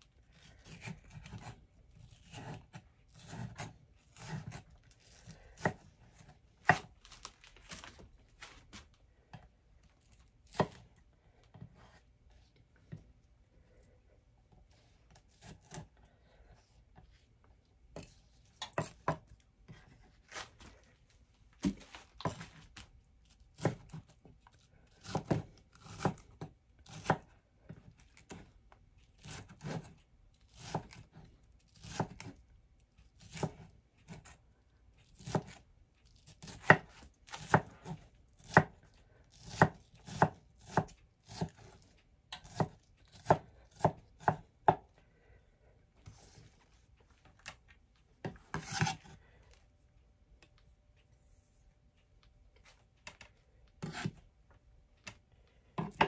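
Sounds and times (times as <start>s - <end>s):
knife chopping on wooden board: 0.6s - 6.9s, 10.5s - 10.9s, 18.0s - 20.0s, 23.6s - 24.1s, 25.0s - 27.3s, 29.2s - 29.9s, 30.5s - 31.2s, 31.8s - 32.3s, 33.2s - 34.3s, 35.2s - 35.6s, 36.4s - 41.8s, 42.4s - 44.9s, 48.2s - 49.1s, 53.8s - 54.2s, 55.8s - 56.0s.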